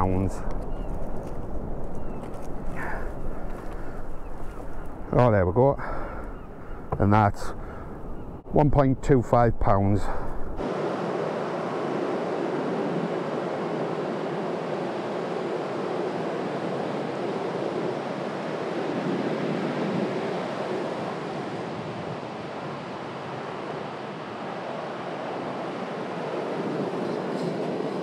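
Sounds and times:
sea surf breaking: 10.6s - 28.0s.

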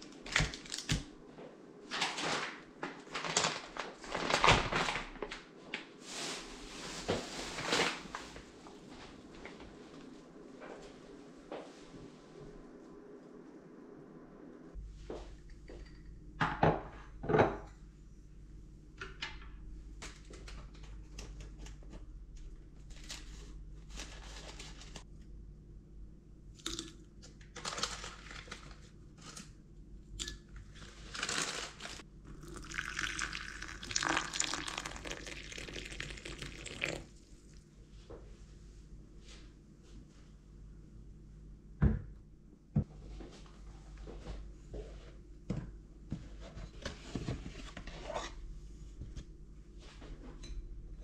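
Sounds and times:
steady low hum: 6.2s - 51.0s
liquid pouring: 32.3s - 37.5s.

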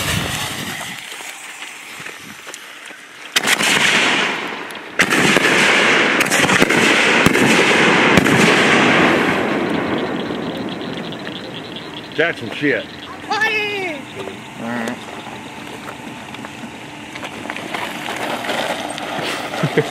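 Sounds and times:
firework cracks: 0.0s - 14.2s, 15.7s - 19.9s
firework fountain spark hiss: 0.0s - 19.9s.

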